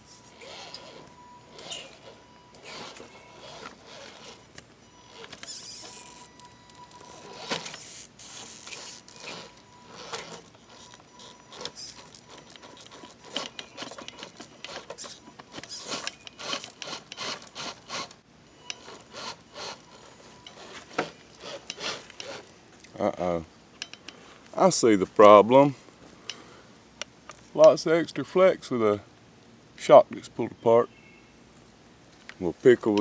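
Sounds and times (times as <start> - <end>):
toy tyres scraping over rock: 0.0 - 18.2, 18.8 - 22.5
faint motor whine: 0.0 - 33.0.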